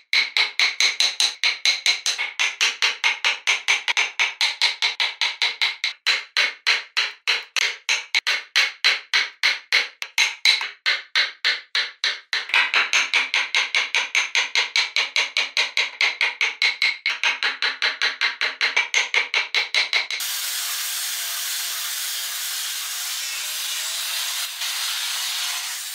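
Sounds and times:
mallet striking chisel into wood: 0.1 - 14.4.

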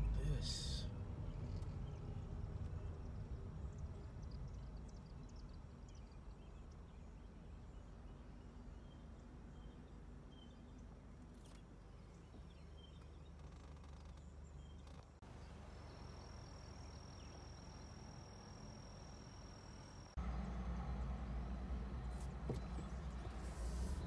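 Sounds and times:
car rolling slowly: 0.0 - 8.2, 10.9 - 24.0
faint bird chirps: 4.0 - 20.2.

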